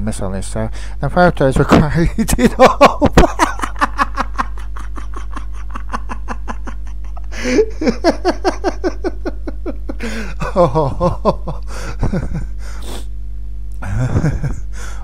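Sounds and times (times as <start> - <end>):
person laughing: 2.3 - 12.7, 13.8 - 15.0.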